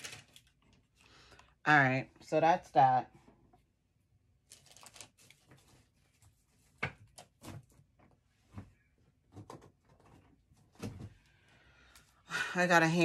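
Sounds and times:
rustling while rummaging: 0:00.0 - 0:01.0, 0:04.5 - 0:11.2.

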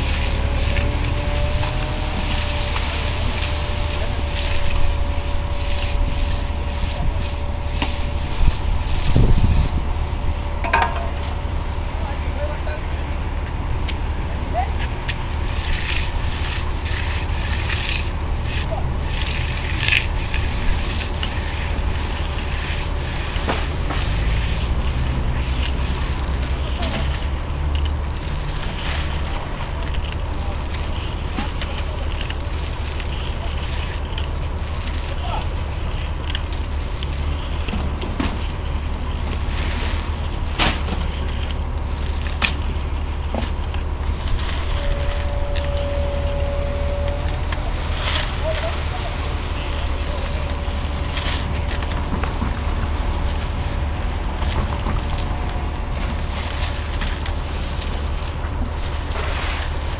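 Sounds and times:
gritty scraping and rubbing: 0:00.0 - 0:12.8, 0:13.7 - 0:59.9
steady low rumble: 0:00.0 - 0:59.9
wind buffeting microphone: 0:01.2 - 0:11.9.

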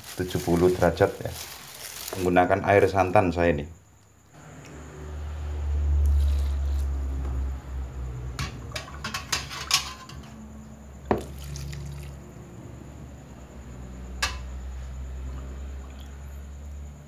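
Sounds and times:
liquid pouring: 0:11.2 - 0:12.1.

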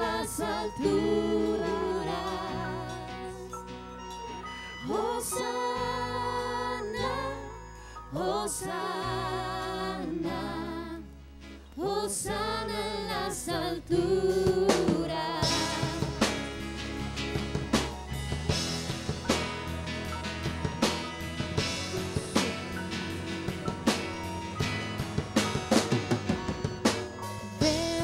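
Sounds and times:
woman singing: 0:00.0 - 0:03.5, 0:04.8 - 0:11.0, 0:11.8 - 0:16.2, 0:27.6 - 0:28.0
drums and cymbals: 0:14.3 - 0:28.0
electric guitar: 0:15.4 - 0:28.0
strummed acoustic guitar: 0:15.4 - 0:28.0.

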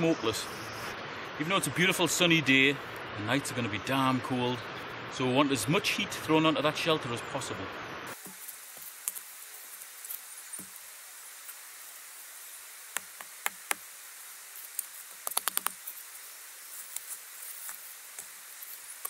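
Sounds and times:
faint steady hiss: 0:00.0 - 0:19.0
rocks knocking and clacking: 0:14.8 - 0:15.8.

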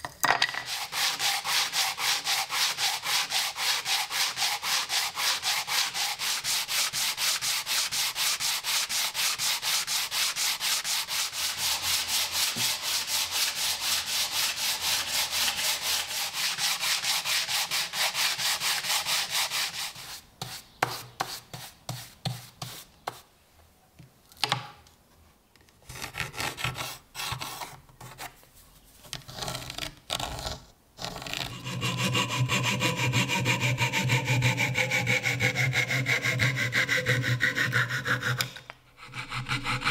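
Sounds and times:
wooden block sanding strokes: 0:00.6 - 0:23.2, 0:31.4 - 0:39.9.

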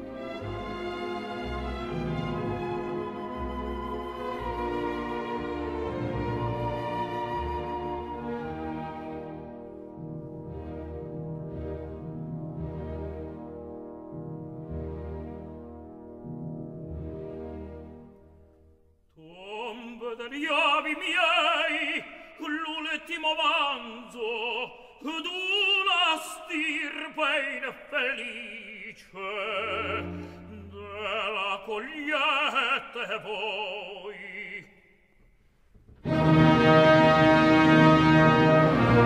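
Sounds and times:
orchestra playing: 0:00.0 - 0:18.6, 0:36.0 - 0:39.0
tenor singing opera: 0:19.1 - 0:35.0.

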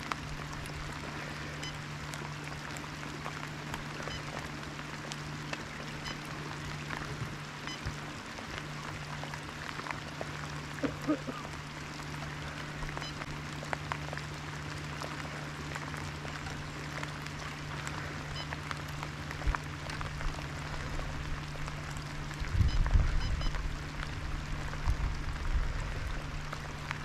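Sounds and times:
rain pattering on deck and water: 0:00.0 - 0:27.0
raindrop ticks: 0:00.0 - 0:27.0
steady low hum: 0:00.0 - 0:27.0.

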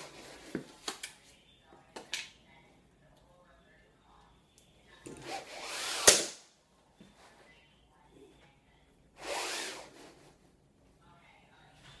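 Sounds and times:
shade cord zipping: 0:05.1 - 0:06.4, 0:09.2 - 0:10.2.

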